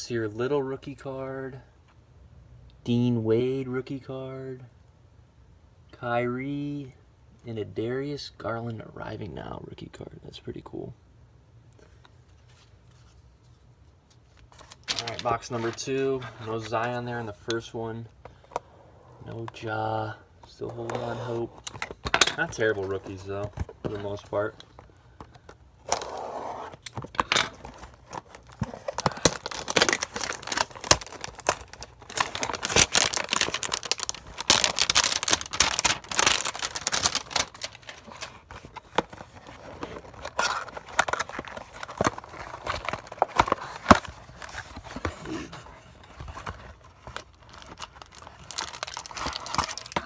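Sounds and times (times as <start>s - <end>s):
cardboard box tearing and crinkling: 27.6s - 45.6s, 46.3s - 50.0s.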